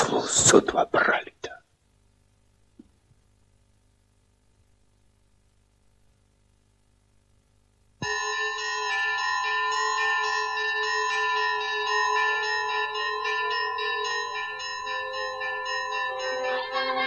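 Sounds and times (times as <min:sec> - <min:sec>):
held low bell tone: 0:08.0 - 0:17.0
quick bell strikes: 0:08.0 - 0:17.0
wavering singing voice: 0:11.2 - 0:17.0.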